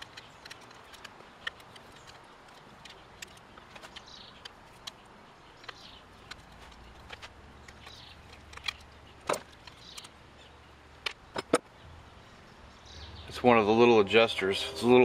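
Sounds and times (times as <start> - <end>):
small metal parts clicking: 0.0 - 10.2.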